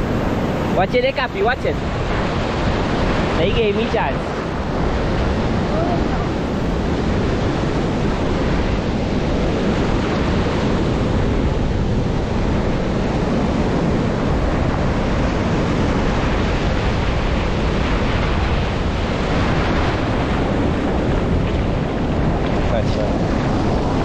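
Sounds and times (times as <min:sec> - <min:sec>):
ocean surf breaking: 0:00.0 - 0:24.0
wash running over sand: 0:00.0 - 0:24.0
wind buffeting microphone: 0:00.0 - 0:24.0.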